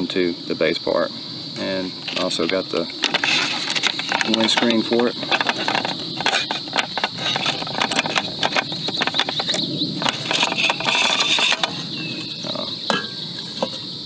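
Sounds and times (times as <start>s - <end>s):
folding handle flipping against pot: 12.5s - 13.8s
metal cook pot clicks and knocks: 12.5s - 13.8s.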